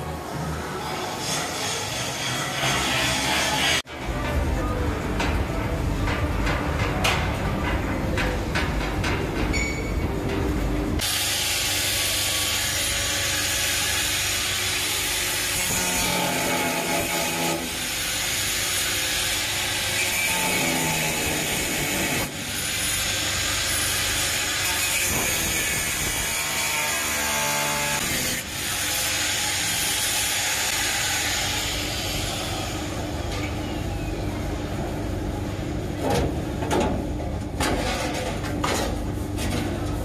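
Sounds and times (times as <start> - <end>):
metal knocks and clanks: 5.1 - 10.6, 36.0 - 40.0
angle grinder cutting metal: 11.0 - 31.8.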